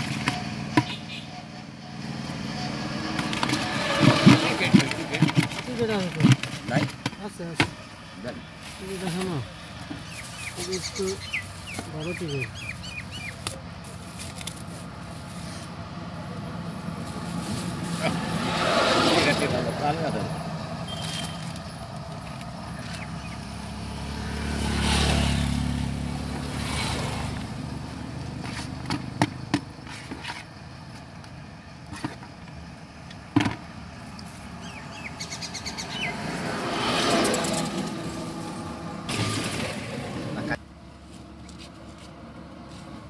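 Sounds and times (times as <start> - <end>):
birds chirping: 0.0 - 13.8, 19.2 - 24.2, 34.4 - 36.9
vehicle engine rumble passing: 0.0 - 43.0
sharp knocks and clicks: 3.1 - 7.8.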